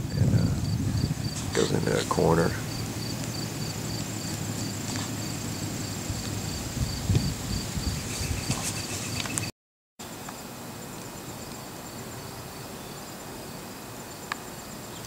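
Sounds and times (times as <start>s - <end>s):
low rustles: 0.0s - 9.5s
insects trilling: 0.0s - 15.0s
pulsing insect chirp: 0.0s - 15.0s.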